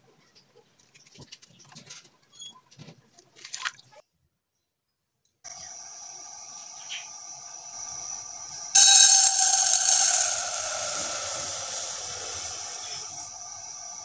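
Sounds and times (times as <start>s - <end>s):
sugar pattering on metal pot: 5.8s - 14.0s.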